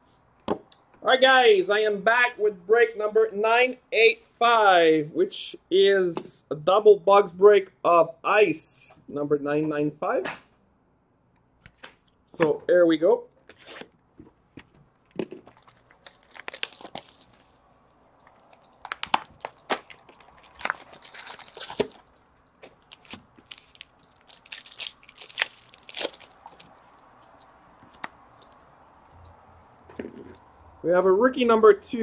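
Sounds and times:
plastic wrap crinkling and tearing: 0:15.1 - 0:28.7.

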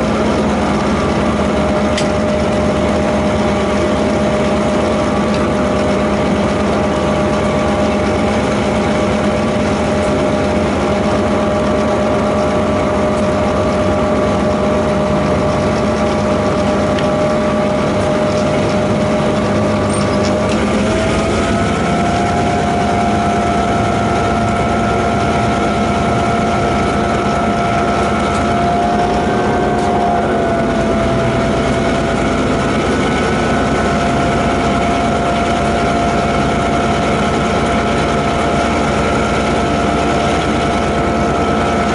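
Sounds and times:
locomotive engine drone: 0:00.0 - 0:41.9
locomotive whine: 0:00.0 - 0:41.9.

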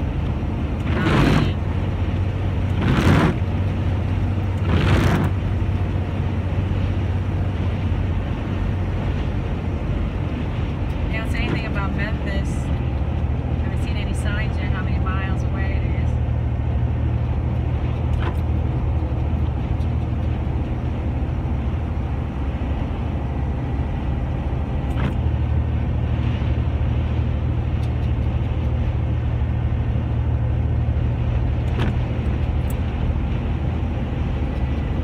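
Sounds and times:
vehicle cabin road noise: 0:00.0 - 0:35.0.

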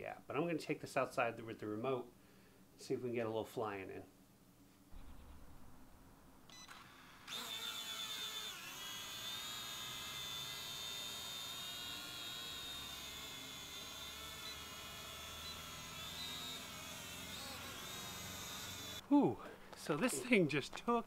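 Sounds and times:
toy drone propellers whining: 0:06.7 - 0:19.0.

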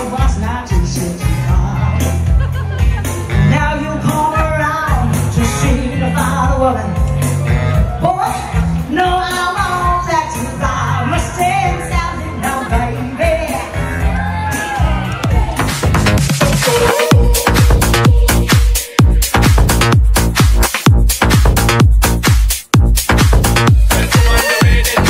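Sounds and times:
woman singing into a microphone: 0:00.0 - 0:02.0, 0:03.4 - 0:07.0, 0:16.6 - 0:18.8
rock backing track with bass beat: 0:00.0 - 0:10.4, 0:13.6 - 0:25.0.

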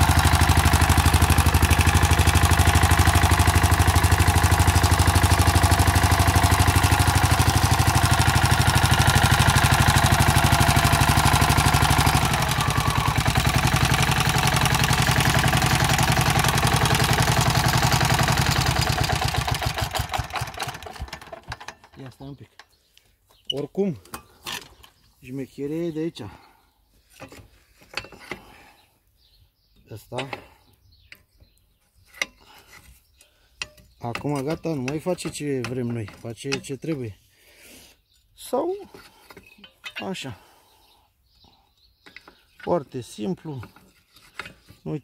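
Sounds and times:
tiller engine running: 0:00.0 - 0:22.2.

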